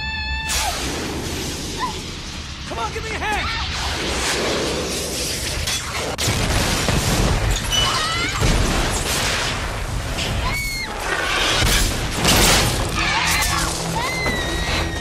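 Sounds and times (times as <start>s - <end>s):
debris crashing: 3.7s - 15.0s.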